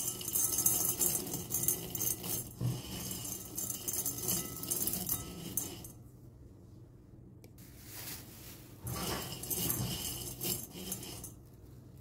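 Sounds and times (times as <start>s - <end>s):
dry leaves rustling in a bowl: 7.6s - 8.8s.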